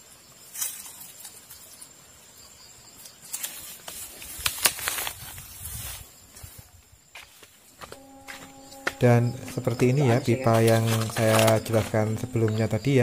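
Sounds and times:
faint high insect tone: 0.0 - 13.0
grass and soil rustling: 3.0 - 13.0.

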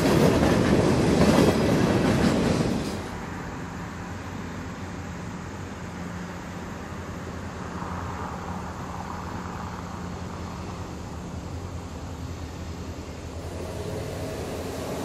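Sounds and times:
diesel locomotive engine drone: 0.0 - 15.0
hiss: 12.6 - 15.0.

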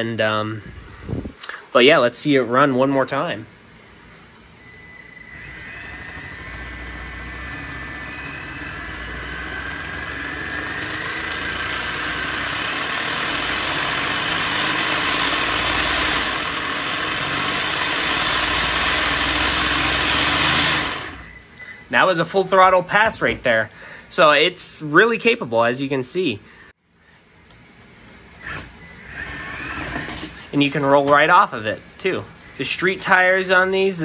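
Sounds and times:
toy car motor whining: 4.7 - 21.4, 28.4 - 30.2
tires spinning plastic rollers: 5.0 - 21.4.

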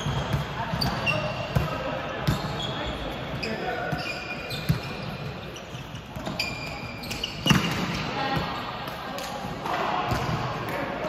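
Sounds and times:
sneakers squeaking on floor: 0.0 - 9.0
players' voices: 0.0 - 11.0
volleyball struck with slap: 7.4 - 8.0.

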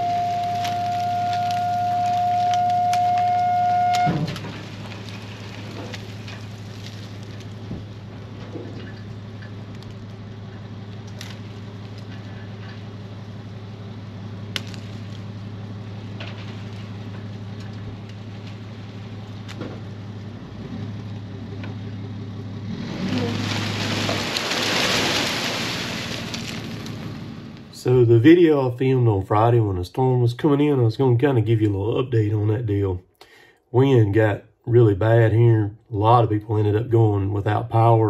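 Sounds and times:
wood chips sliding out: 0.0 - 10.2, 14.5 - 19.6, 22.7 - 27.8
machine hum: 0.0 - 28.2.

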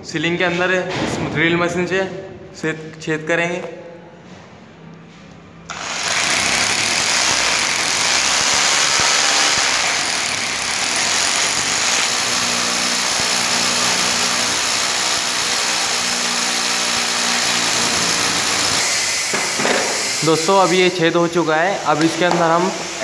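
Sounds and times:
electric drill boring into concrete: 5.7 - 20.8.

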